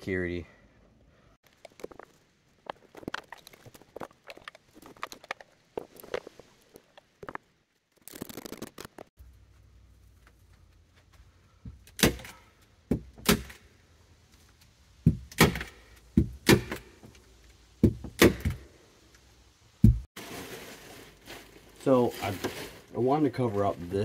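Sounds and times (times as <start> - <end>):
knocks and thuds on wood: 12.9 - 13.5, 15.0 - 17.1, 17.8 - 18.6, 19.8 - 20.0.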